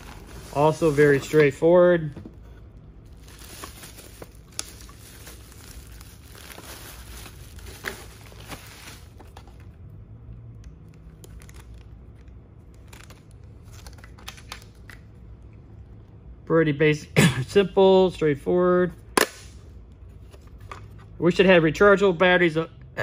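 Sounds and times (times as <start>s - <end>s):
bubble wrap and plastic crinkling: 0.0s - 2.1s, 3.0s - 9.8s, 10.9s - 15.0s.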